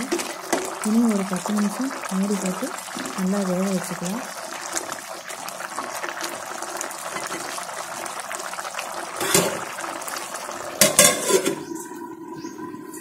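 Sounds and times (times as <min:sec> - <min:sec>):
curry bubbling in a pot: 0:00.0 - 0:13.0
metal lid clanking on pot: 0:09.2 - 0:09.7, 0:10.8 - 0:11.7.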